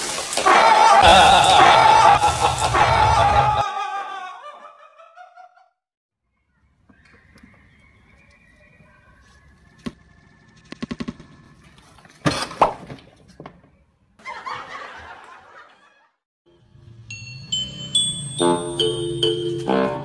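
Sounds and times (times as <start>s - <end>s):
music: 16.5s - 20.0s.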